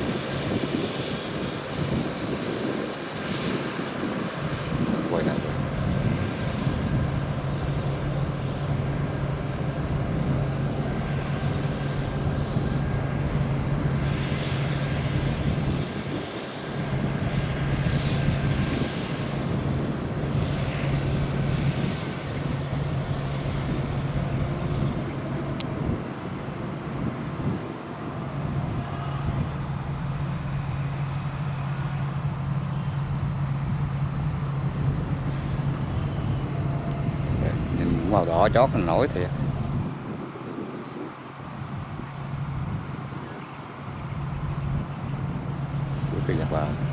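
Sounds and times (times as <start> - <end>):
diesel engine drone: 0.0 - 46.9.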